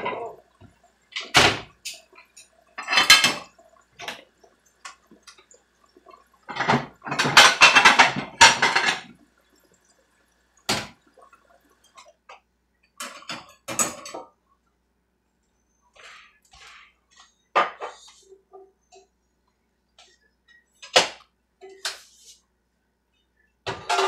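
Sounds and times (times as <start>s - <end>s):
water splashing in sink: 0.0s - 12.2s
dishes clinking: 1.2s - 4.2s, 6.0s - 9.1s, 23.7s - 24.0s.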